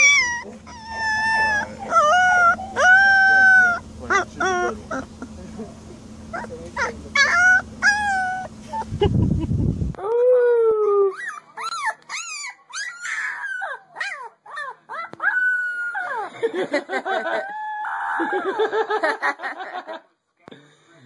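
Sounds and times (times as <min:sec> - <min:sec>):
puppies howling and yipping: 0:00.0 - 0:05.2, 0:06.3 - 0:08.9, 0:11.1 - 0:16.4, 0:17.1 - 0:18.8
low rumble: 0:08.6 - 0:10.0.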